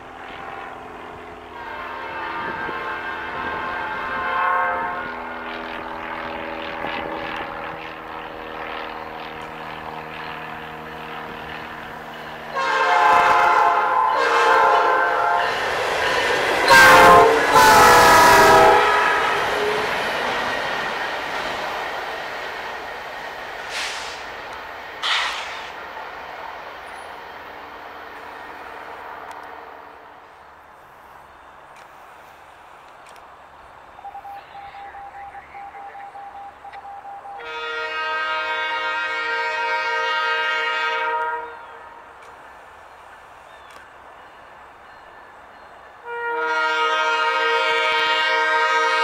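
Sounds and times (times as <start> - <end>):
passing train rumble: 0.0 - 49.0
locomotive air horn: 0.2 - 5.6, 12.4 - 20.2, 23.7 - 24.3, 34.0 - 42.1, 46.0 - 49.0
brief sharp sounds: 25.0 - 25.8.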